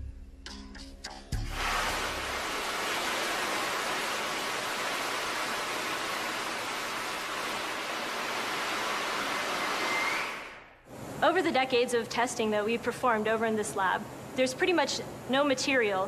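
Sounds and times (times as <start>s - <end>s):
laser beam hissing: 1.5s - 7.9s.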